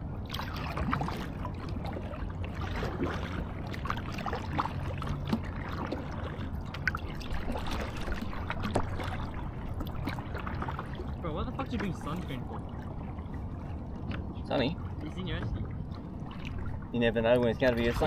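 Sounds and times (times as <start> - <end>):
water splashing against kayak hull: 0.0 - 18.0.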